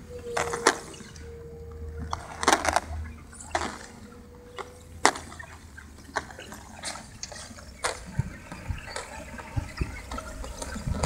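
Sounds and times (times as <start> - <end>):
sharp clicks or crackles: 2.0 - 4.0.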